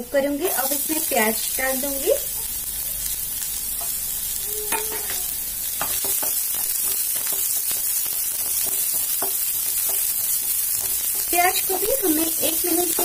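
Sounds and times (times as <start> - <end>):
vegetables sizzling in hot oil: 0.0 - 13.0
spatula scraping a pan: 4.7 - 12.4.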